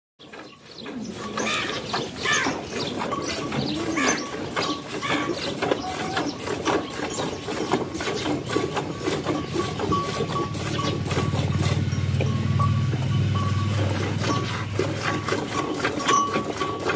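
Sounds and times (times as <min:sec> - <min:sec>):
milk squirting into bucket: 0:01.1 - 0:12.3, 0:13.7 - 0:16.9
low steady hum: 0:07.8 - 0:16.8.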